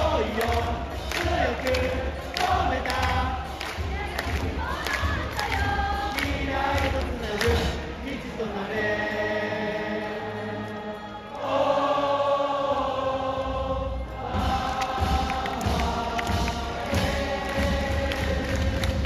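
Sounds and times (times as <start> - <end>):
crowd singing in unison: 0.0 - 19.0
drum hits: 14.2 - 19.0.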